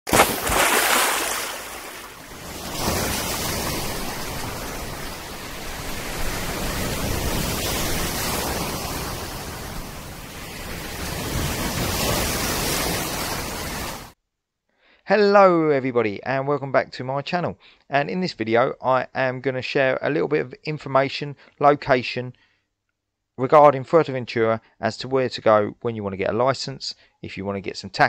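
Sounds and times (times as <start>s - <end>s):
sea surf breaking: 0.1s - 14.2s.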